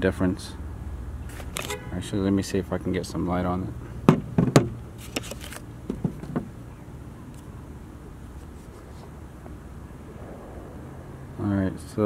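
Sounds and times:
handling knocks and clicks: 4.0s - 6.6s.

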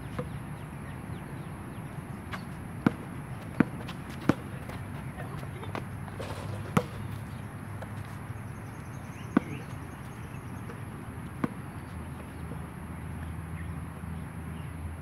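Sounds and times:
steady background hum: 0.0s - 15.0s
basketball bouncing on court: 2.3s - 12.6s.

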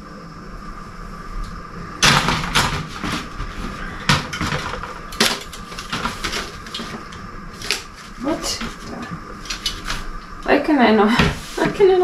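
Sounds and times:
metal wire racks clattering: 2.0s - 10.1s.

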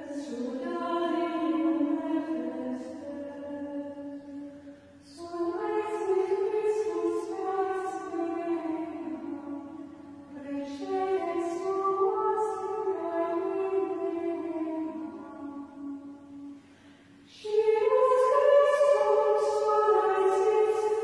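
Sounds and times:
women's choir chanting: 5.1s - 16.0s, 17.4s - 21.0s.

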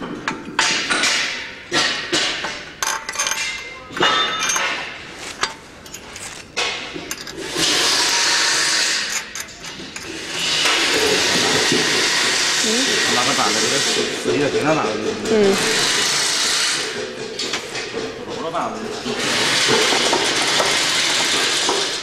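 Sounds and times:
metal clinks and knocks: 0.0s - 7.4s.

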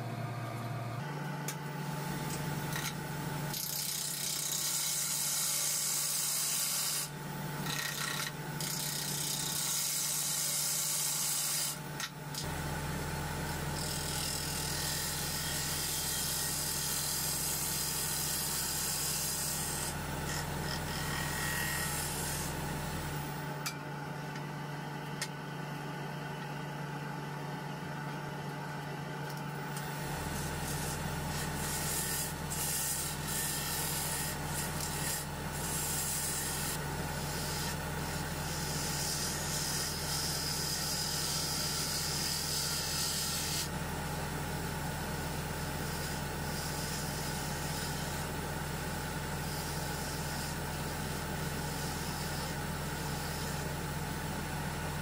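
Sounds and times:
turning tool scraping wood: 29.7s - 43.7s.

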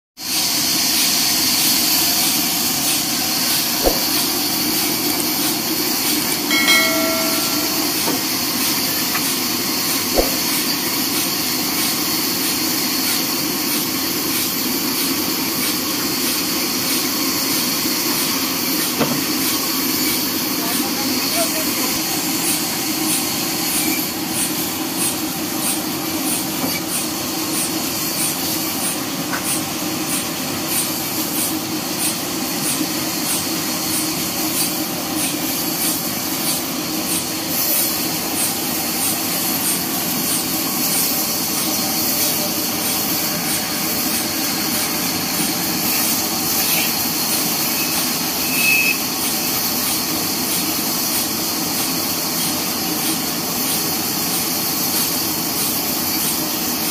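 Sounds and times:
short high squeak: 47.7s - 49.0s.

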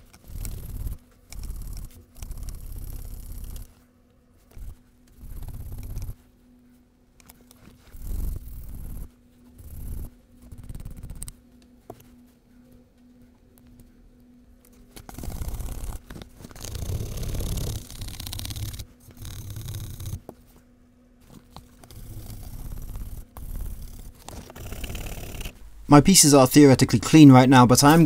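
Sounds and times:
bristle brush scrubbing leather: 21.5s - 25.5s.

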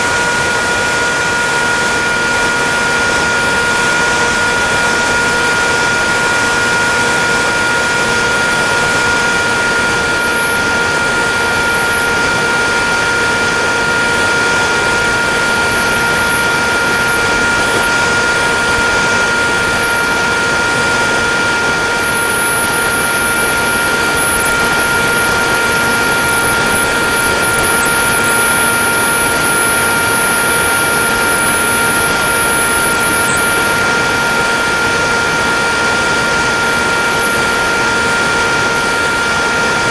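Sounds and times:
electric motor and propeller: 0.0s - 39.9s
thin high whine: 0.0s - 39.9s.

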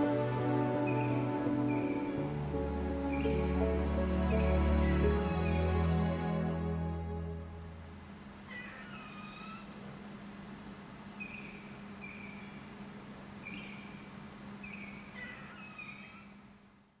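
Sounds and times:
low hum: 0.0s - 8.5s.

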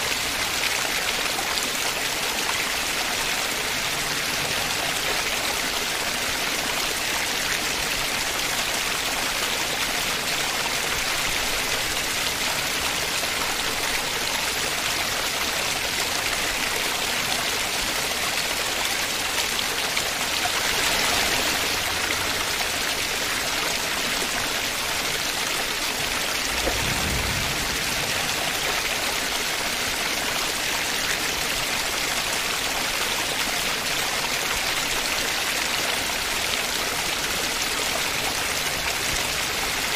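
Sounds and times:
river in flood rushing: 0.0s - 39.9s
waterfall pouring: 0.0s - 39.9s
low thump: 26.5s - 28.6s.

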